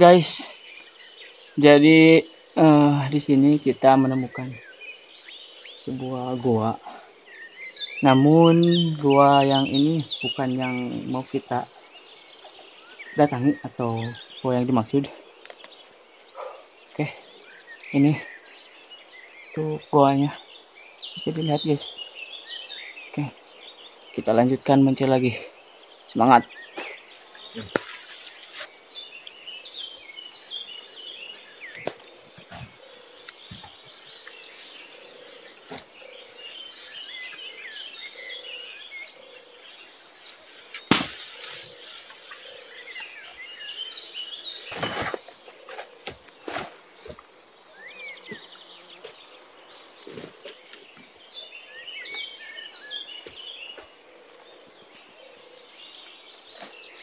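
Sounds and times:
birds chirping: 0:00.0 - 0:57.0
high insect drone: 0:00.0 - 0:57.0
footsteps through undergrowth: 0:26.8 - 0:29.4
sharp snap: 0:27.6 - 0:28.1, 0:31.7 - 0:32.0, 0:40.7 - 0:41.6.

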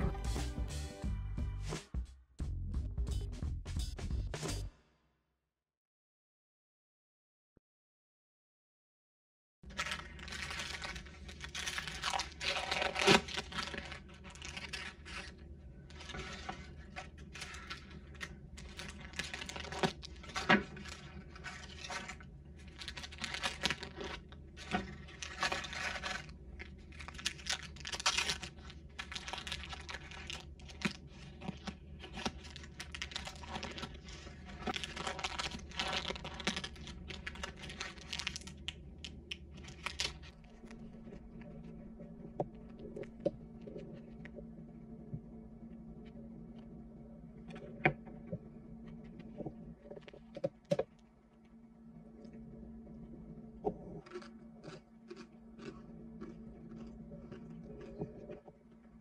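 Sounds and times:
crisp crust crunching: 0:09.6 - 0:41.9, 0:53.8 - 0:58.4
paper liners crinkling and tearing: 0:09.7 - 0:38.7, 0:39.6 - 0:40.8.

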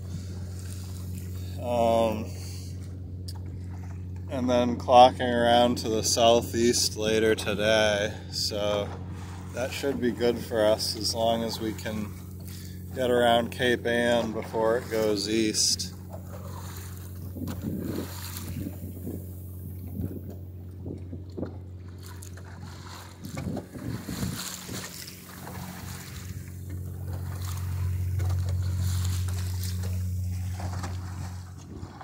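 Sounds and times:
low hum: 0:00.0 - 0:32.0
water lapping against hull: 0:00.0 - 0:32.0
wind on microphone: 0:17.2 - 0:21.6, 0:23.2 - 0:32.0.

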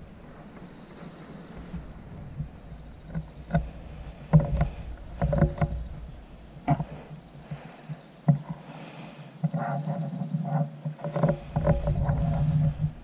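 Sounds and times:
gun handling knocks and rubs: 0:03.0 - 0:08.6, 0:09.4 - 0:13.0.

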